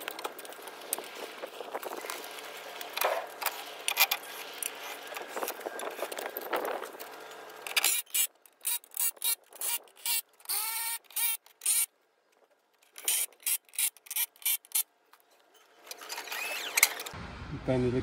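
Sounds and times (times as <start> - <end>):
power wrench whining: 2.8 - 11.9, 12.9 - 14.9, 15.8 - 17.2.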